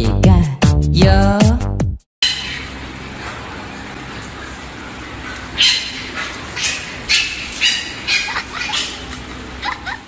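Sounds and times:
dog yipping: 5.2 - 10.0.

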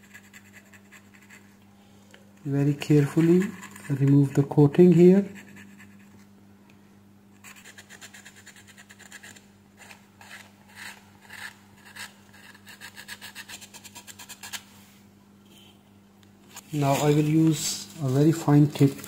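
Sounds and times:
faint steady hum: 0.0 - 19.0
sandpaper scratching circuit board: 2.8 - 4.1, 7.4 - 14.6.

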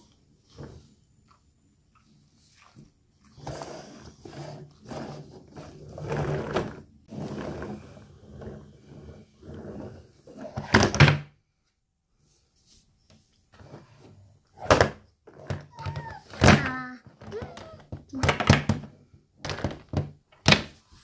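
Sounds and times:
plastic toy rattling and knocking: 15.2 - 20.7.

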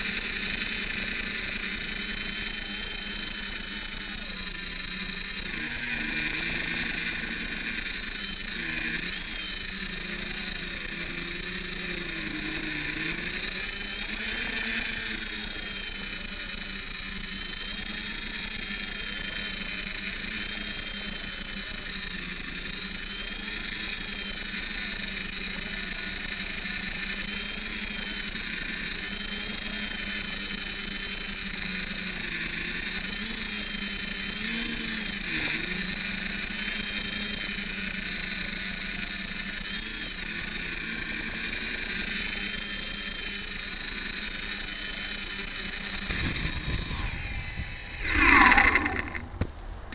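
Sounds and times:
drone motors whining: 0.0 - 49.9
high whistle: 37.9 - 49.5.

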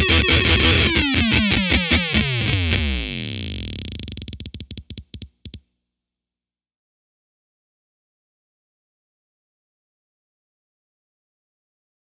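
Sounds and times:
fuzzy synth-like electric guitar: 0.0 - 4.3.

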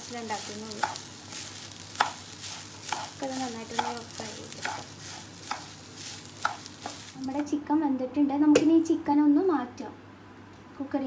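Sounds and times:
rice sizzling in a pan: 0.0 - 7.5
spatula scraping a pan: 0.2 - 7.2.

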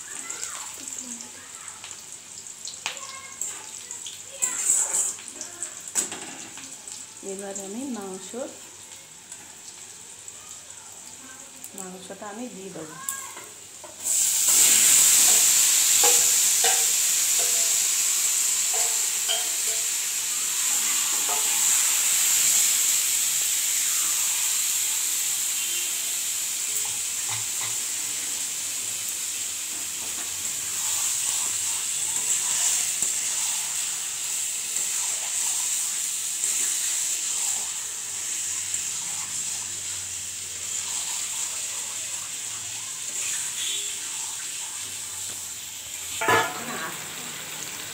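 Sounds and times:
chicken sizzling in hot oil: 0.0 - 47.9
spatula scraping pan: 4.4 - 5.2.

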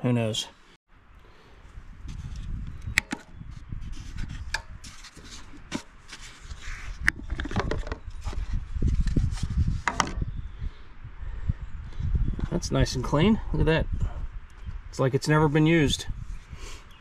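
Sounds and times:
plastic rubbing and scraping: 2.0 - 10.2.

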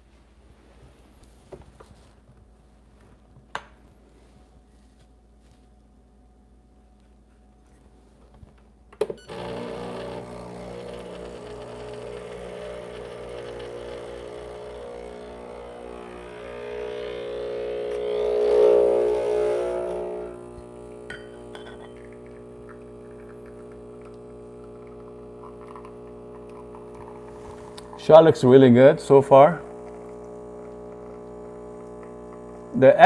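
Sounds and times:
espresso machine pump buzzing: 9.2 - 33.0.

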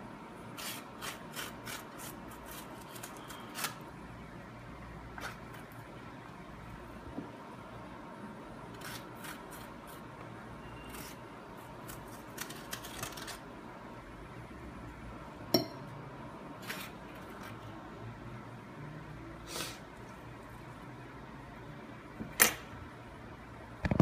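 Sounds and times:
fork scraping squash: 0.6 - 3.8, 8.7 - 10.1, 10.7 - 13.4, 16.6 - 17.6.

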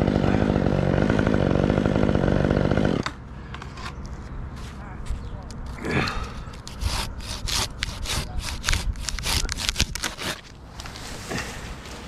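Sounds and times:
handsaw cutting through tree stem: 6.2 - 10.5.

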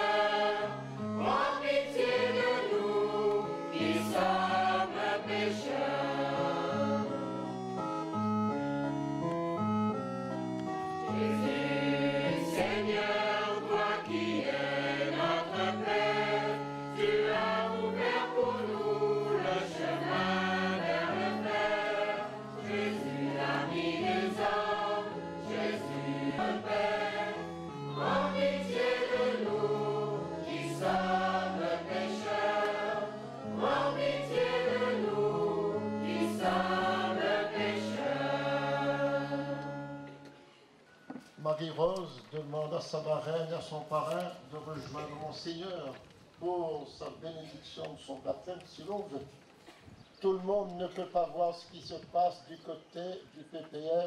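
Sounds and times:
choir singing a hymn: 0.0 - 7.9, 11.0 - 40.3
low held accompaniment notes: 0.0 - 43.7.

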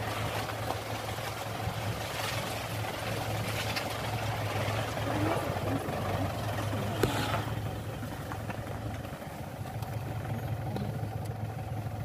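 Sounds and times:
car engine humming: 0.0 - 12.0.

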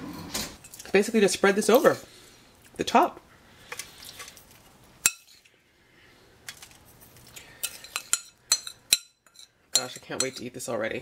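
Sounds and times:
metal spoon clinking on bowl: 5.0 - 5.4, 7.6 - 10.5.

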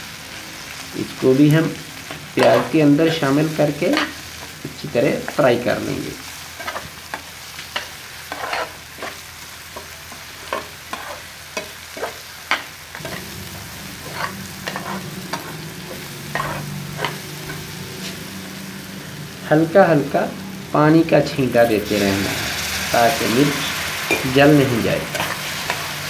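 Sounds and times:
food sizzling in frying pan: 0.0 - 26.0
metal spatula scraping pan: 2.1 - 4.4, 6.6 - 9.2, 9.8 - 18.3, 21.9 - 26.0.

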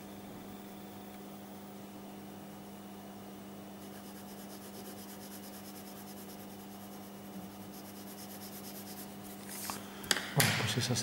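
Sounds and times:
steady low hum: 0.0 - 11.0
pencil scratching on paper: 3.8 - 9.6.

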